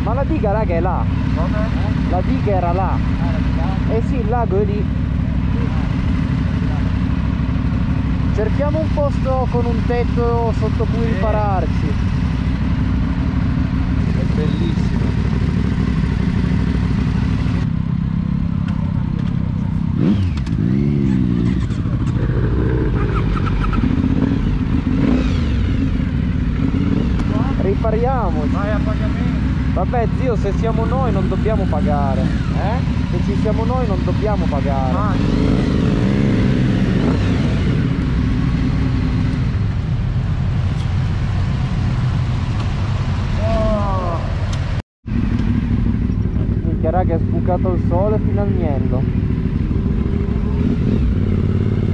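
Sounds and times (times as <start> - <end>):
motorcycle engines running slowly: 0.0 - 51.9.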